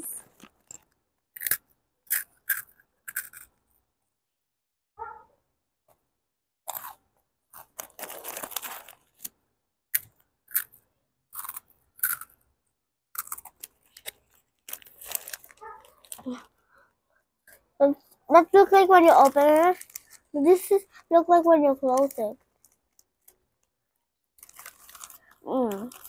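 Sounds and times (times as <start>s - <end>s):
child chewing crunchy snack: 0.2s - 3.6s, 6.6s - 9.4s, 10.0s - 16.7s, 19.2s - 21.1s, 24.4s - 26.0s.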